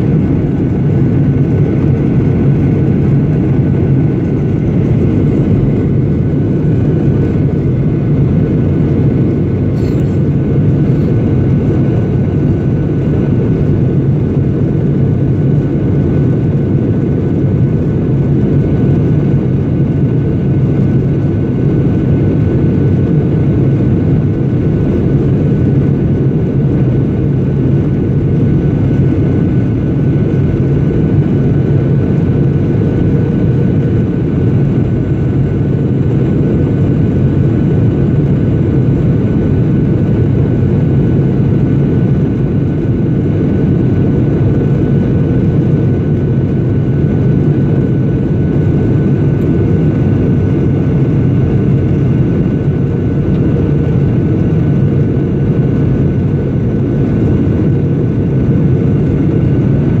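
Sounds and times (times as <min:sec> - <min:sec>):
jet engine and airflow rumble: 0:00.0 - 1:00.0.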